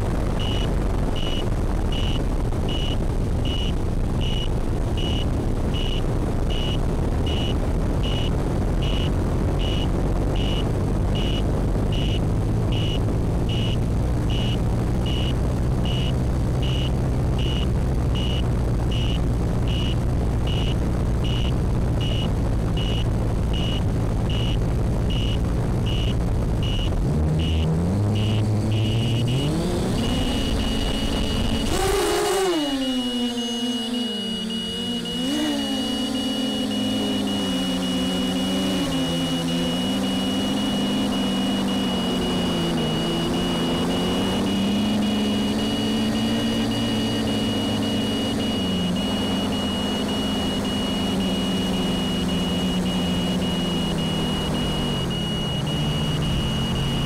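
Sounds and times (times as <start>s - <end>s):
drone motor and propeller noise: 0.0s - 57.0s
high electronic beeper: 0.3s - 57.0s.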